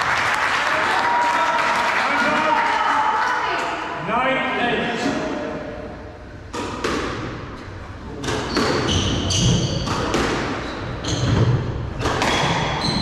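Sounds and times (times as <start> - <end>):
shoes squeaking on court floor: 7.5 - 13.0
squash ball cracking off walls: 8.2 - 12.8.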